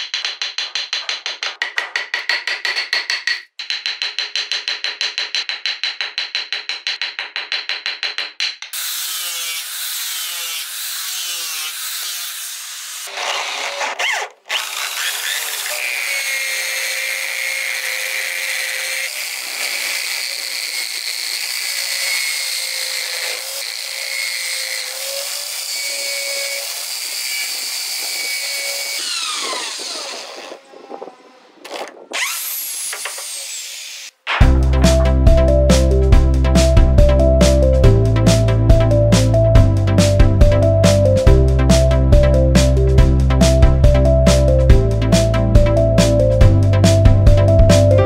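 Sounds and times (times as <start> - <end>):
hand tool scraping spinning wood: 8.8 - 34.1
small electric motor whining: 8.8 - 34.1.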